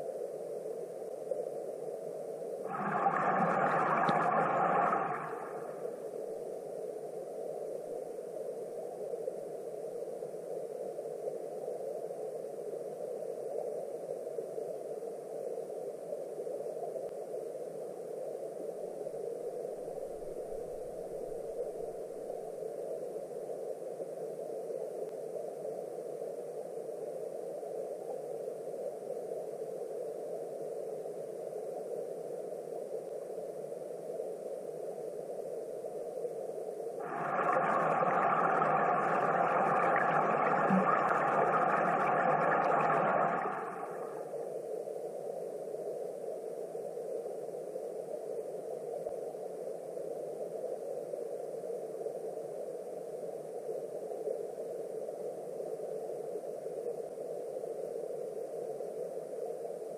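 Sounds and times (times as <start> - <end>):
muffled underwater river rush: 2.7 - 6.7, 19.8 - 22.6, 37.0 - 44.9.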